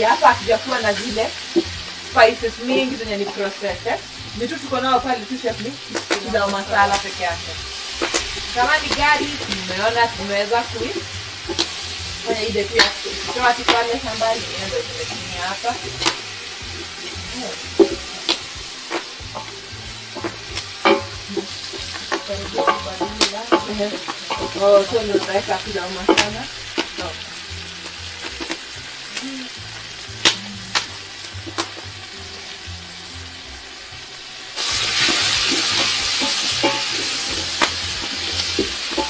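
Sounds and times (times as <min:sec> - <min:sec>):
food sizzling in a pot: 0:00.0 - 0:39.0
utensil scraping a pot: 0:05.8 - 0:27.2, 0:34.6 - 0:39.0.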